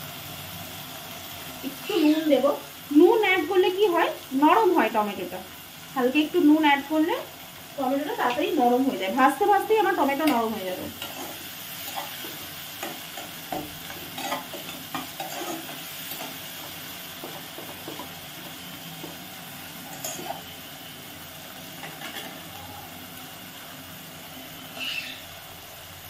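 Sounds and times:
vegetables sizzling in oil: 0:00.0 - 0:26.0
spatula scraping pot: 0:11.0 - 0:18.2.

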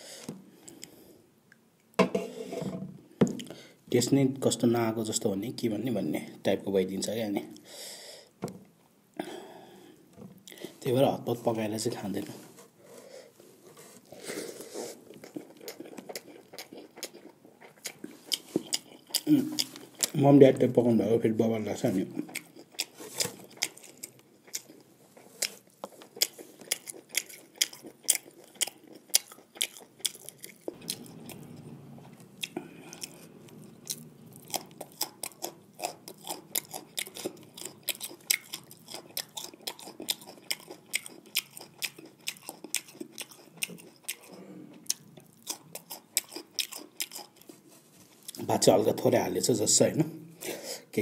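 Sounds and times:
chewing and mouth smacks: 0:15.0 - 0:20.2, 0:22.1 - 0:47.6.

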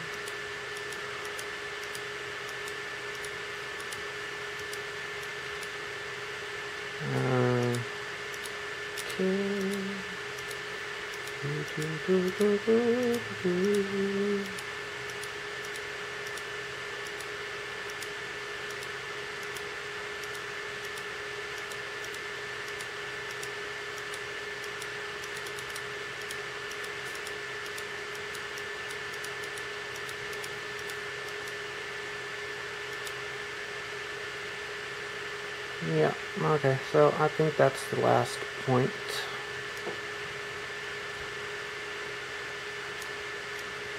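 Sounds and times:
electrical hum: 0:00.0 - 0:43.9
mouse clicking: 0:00.1 - 0:04.0, 0:10.4 - 0:12.4, 0:14.4 - 0:31.6, 0:32.9 - 0:33.2
person humming: 0:07.0 - 0:07.9, 0:09.0 - 0:10.2, 0:11.4 - 0:14.6.

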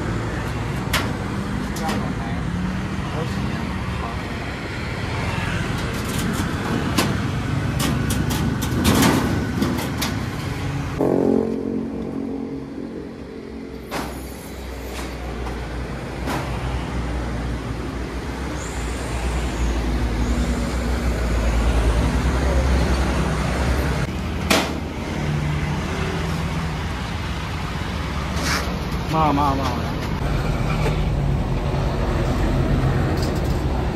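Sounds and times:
road traffic with vehicles passing: 0:00.0 - 0:33.9
metal panels knocking and clattering: 0:06.0 - 0:10.2
low vehicle rumble: 0:06.0 - 0:17.1.

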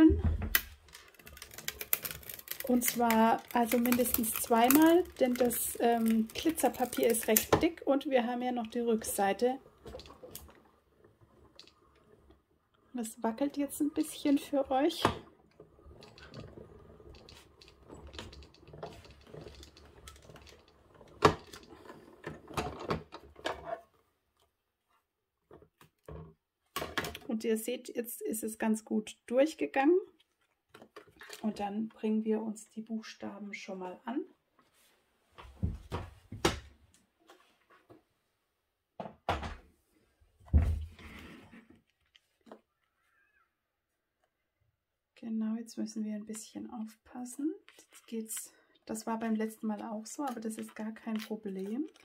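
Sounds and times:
rollers clicking and knocking: 0:00.6 - 0:23.7, 0:47.8 - 0:52.0.

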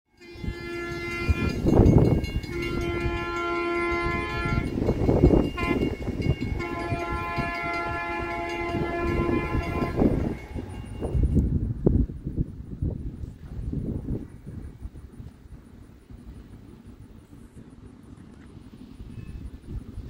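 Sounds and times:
train horn blasts: 0:00.1 - 0:11.4
rumbling train noise: 0:00.1 - 0:20.0.

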